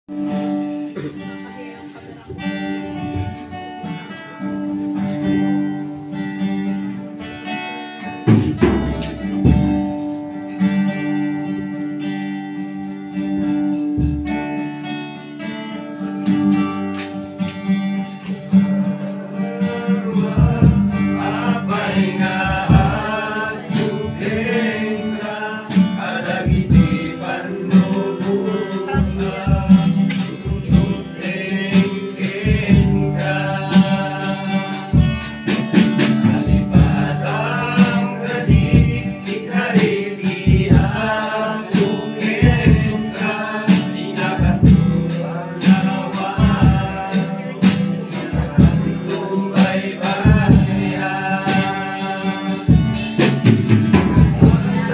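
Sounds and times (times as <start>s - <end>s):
strummed acoustic guitar: 0.1s - 54.9s
group of voices singing: 18.1s - 54.9s.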